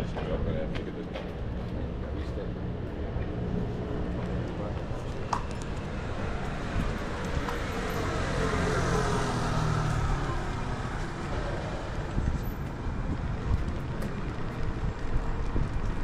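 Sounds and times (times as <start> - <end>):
street traffic noise: 0.0 - 16.0
vehicle passing close by: 5.9 - 12.4.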